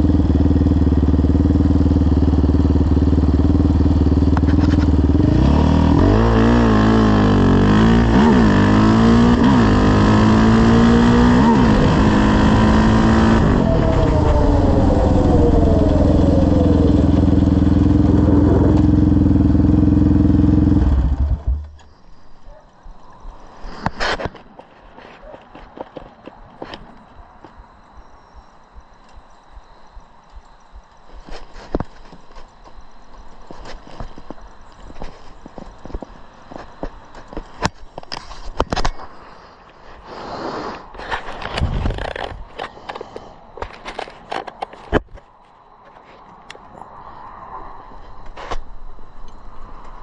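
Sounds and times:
quad engine revving: 0.0 - 21.7.

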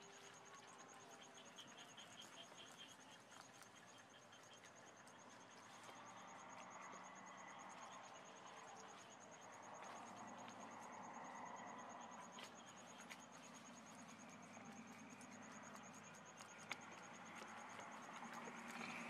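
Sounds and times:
insect trill: 0.0 - 19.0.

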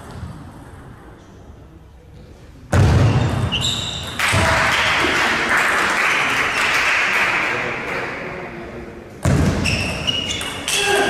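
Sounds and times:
spectators clapping: 4.2 - 8.2.

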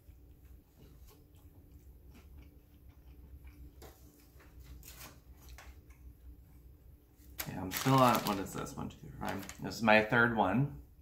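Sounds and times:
chewing crunchy food: 0.0 - 6.6.

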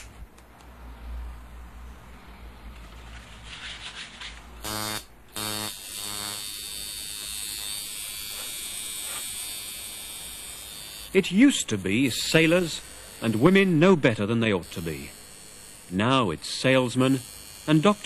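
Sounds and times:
tattoo machine buzzing: 4.6 - 18.0.

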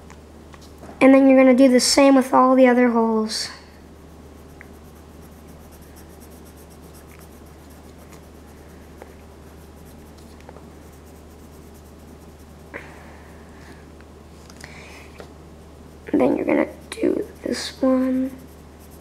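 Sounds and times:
steady low hum: 0.0 - 19.0
pencil scratching on paper: 4.4 - 10.2, 10.8 - 12.7, 15.9 - 19.0.

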